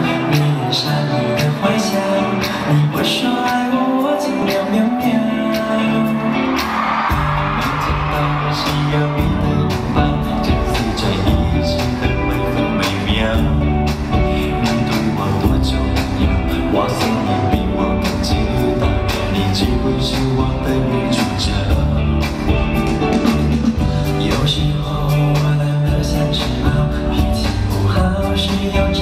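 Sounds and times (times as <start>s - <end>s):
live pop song with singing: 0.0s - 29.0s
deep bass beat: 7.2s - 29.0s.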